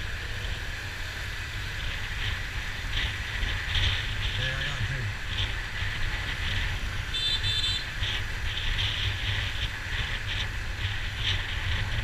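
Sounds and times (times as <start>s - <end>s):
dense street traffic rumble: 0.0s - 12.0s
vehicle horn double beep: 7.1s - 7.9s.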